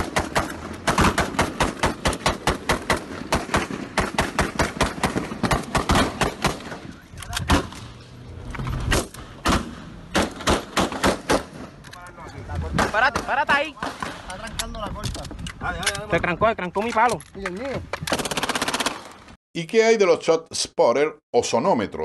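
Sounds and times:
rapid gunfire: 0:00.0 - 0:06.8, 0:18.1 - 0:19.0.

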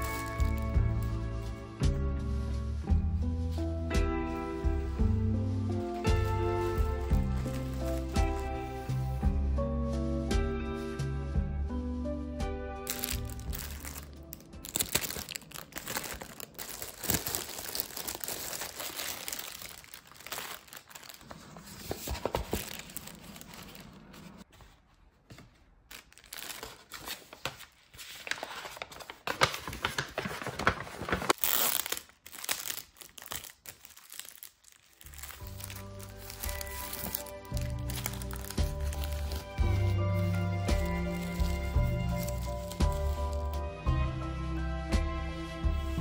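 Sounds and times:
paper rustling and crinkling: 0:00.0 - 0:02.8, 0:03.4 - 0:09.2, 0:12.9 - 0:43.6.

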